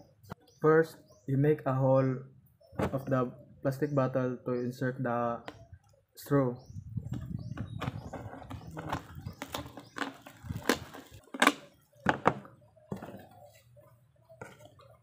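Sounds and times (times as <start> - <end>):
plastic bottle crackling and clicking: 7.5 - 13.4.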